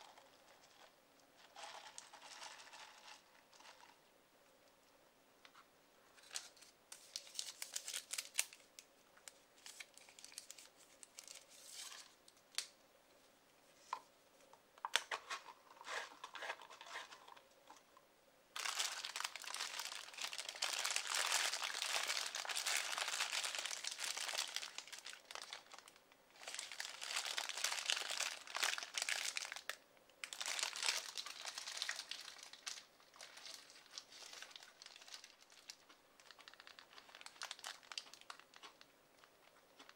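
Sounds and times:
paper wrapper crinkling: 0.0 - 4.0, 6.1 - 12.7, 18.6 - 39.9.

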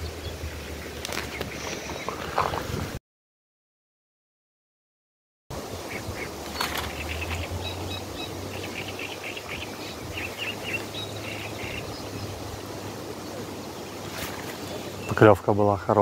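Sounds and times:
small birds chirping: 0.0 - 2.6, 5.8 - 16.0
wind on microphone: 0.0 - 3.0, 5.5 - 15.2.

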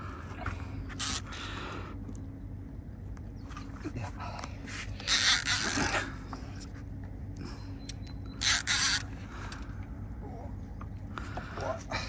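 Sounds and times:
steady low hum: 0.0 - 12.0
fishing reel rasping: 1.0 - 1.5, 5.0 - 6.0, 8.4 - 9.1.

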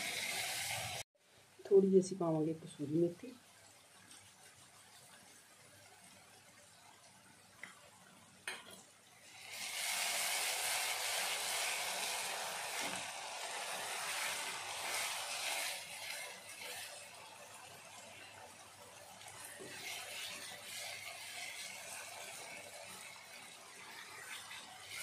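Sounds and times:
masala sizzling in a frying pan: 0.0 - 25.0
spatula stirring: 10.7 - 25.0.

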